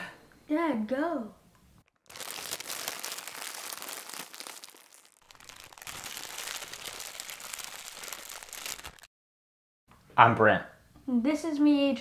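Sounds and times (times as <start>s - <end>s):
static-like crackling crinkle: 1.8s - 9.1s.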